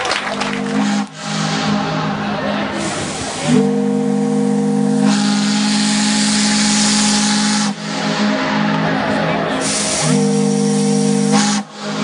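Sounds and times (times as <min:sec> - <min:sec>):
steam whistle chord blasts: 0:00.6 - 0:02.0, 0:03.2 - 0:08.9, 0:09.6 - 0:12.0
steam hissing: 0:00.8 - 0:08.5, 0:09.5 - 0:12.0.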